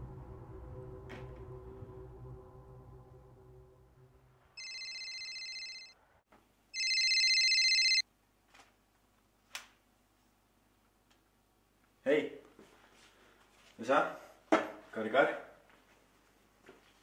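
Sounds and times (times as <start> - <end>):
mobile phone ringing: 4.6 - 6.0, 6.8 - 8.0.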